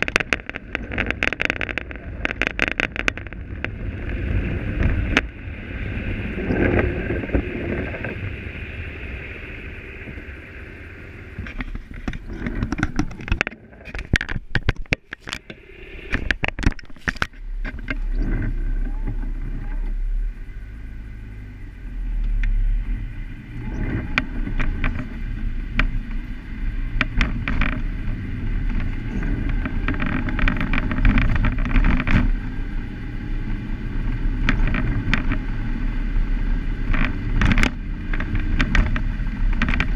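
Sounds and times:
rattling clicks and knocks: 0.0 - 3.7, 11.4 - 19.8, 36.9 - 39.9
engine and tyre rumble: 0.0 - 39.9.

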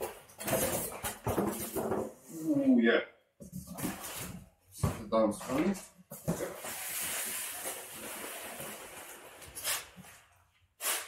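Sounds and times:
packaging rustling and scraping: 6.2 - 11.0.

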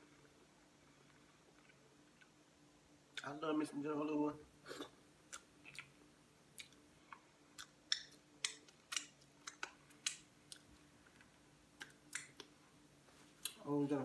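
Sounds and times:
faint steady hum: 0.0 - 14.0
lip smacks and chewing: 4.8 - 12.6.

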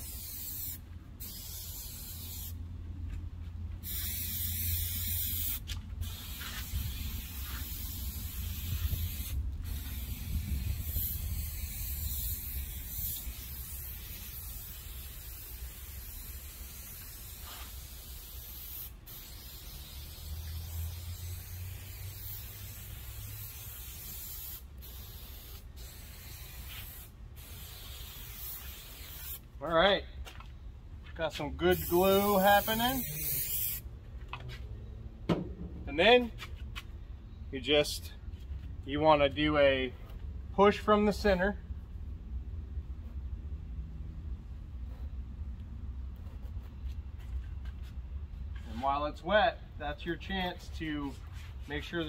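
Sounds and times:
aerosol can hissing: 3.8 - 29.4, 31.8 - 33.8.

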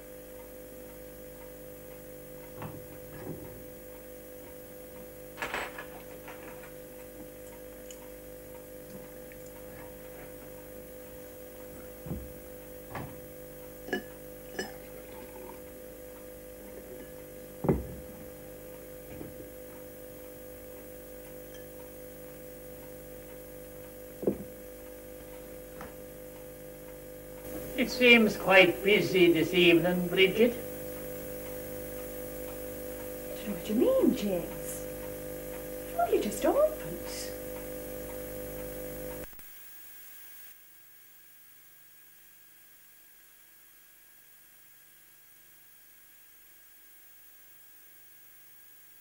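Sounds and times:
steady hum: 0.0 - 49.0
glassware and crockery clinking: 5.4 - 6.0, 13.9 - 15.5.

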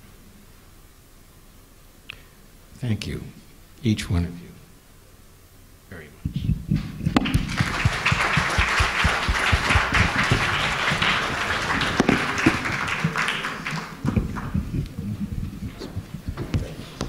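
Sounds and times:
microphone handling thumps: 6.2 - 8.1, 14.0 - 17.0
audience applauding: 7.2 - 17.0.

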